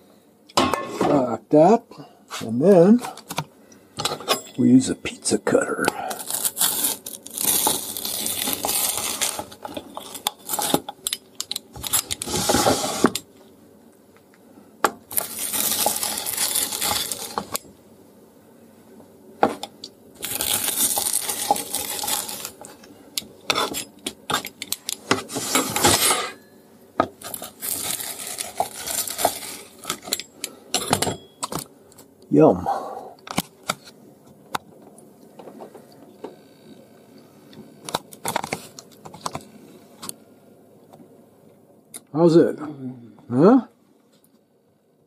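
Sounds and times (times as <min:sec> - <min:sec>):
pizza cutter crunching and scraping: 0:05.9 - 0:11.0, 0:11.6 - 0:13.2, 0:15.1 - 0:17.6, 0:20.2 - 0:22.8, 0:23.4 - 0:26.4, 0:27.2 - 0:30.5.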